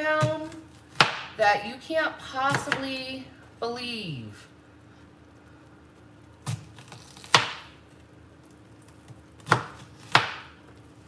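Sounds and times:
knife chopping onion on board: 0:06.5 - 0:07.7, 0:09.4 - 0:10.6.

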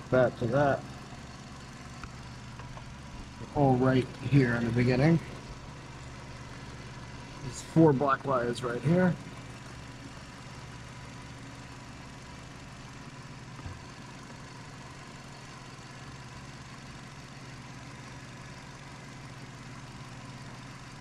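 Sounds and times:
car engine idling: 0:00.0 - 0:21.0
small knock: 0:13.6 - 0:13.9.

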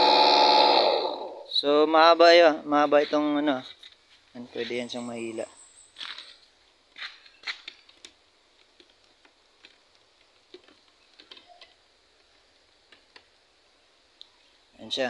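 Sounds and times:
faint handling clicks and taps: 0:07.4 - 0:13.4.

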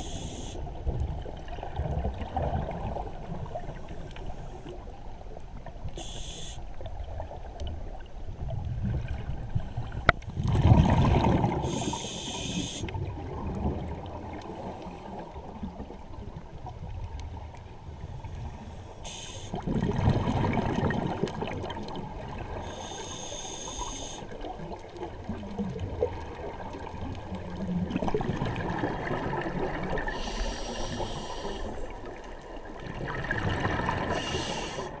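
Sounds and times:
diver breathing through regulator: 0:00.0 - 0:00.6, 0:06.0 - 0:06.6, 0:11.6 - 0:12.9, 0:18.4 - 0:19.6, 0:22.6 - 0:24.3, 0:30.1 - 0:31.9, 0:34.0 - 0:35.0
exhaled bubbles gurgling: 0:00.0 - 0:04.0, 0:08.4 - 0:17.5, 0:18.1 - 0:35.0
low rumble of water: 0:00.0 - 0:35.0.

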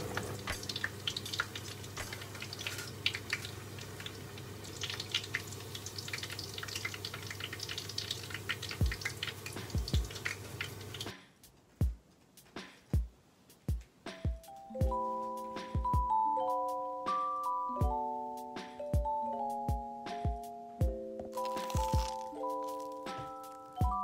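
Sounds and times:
hot oil crackling and spattering: 0:00.0 - 0:11.2, 0:21.4 - 0:23.9.

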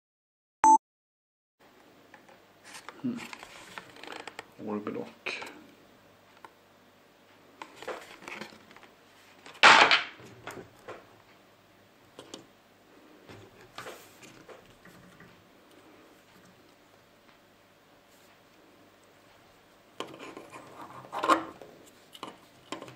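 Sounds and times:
plastic and cardboard rustling: 0:02.6 - 0:04.5, 0:07.6 - 0:11.0, 0:13.3 - 0:15.4.

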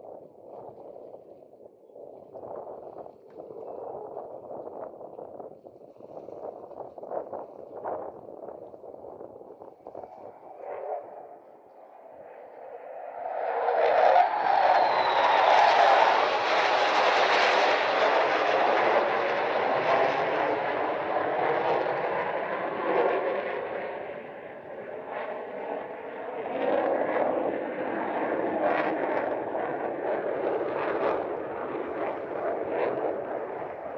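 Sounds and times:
jet engine roar: 0:09.3 - 0:33.9.

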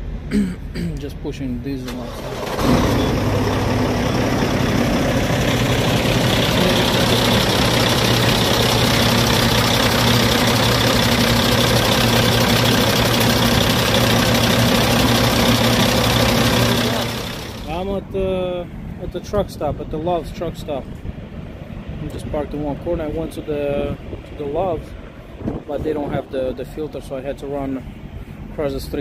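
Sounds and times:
diesel engine idling: 0:01.8 - 0:19.0.

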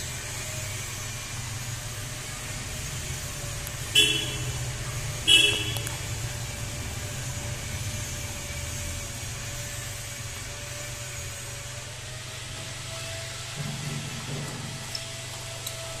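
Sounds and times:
vehicle horn toots: 0:03.8 - 0:06.0.

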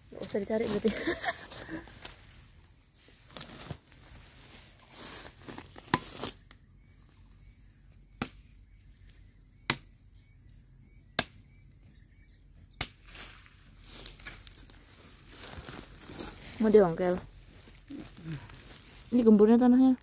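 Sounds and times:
blade chopping woody stem: 0:11.2 - 0:11.4.

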